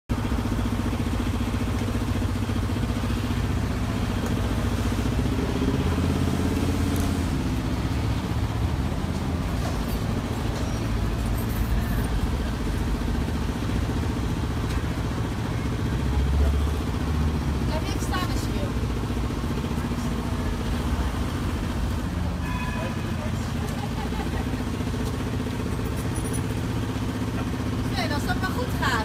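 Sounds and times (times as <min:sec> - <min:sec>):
engine running steadily: 0:00.1 - 0:29.0
street noise: 0:00.1 - 0:29.0.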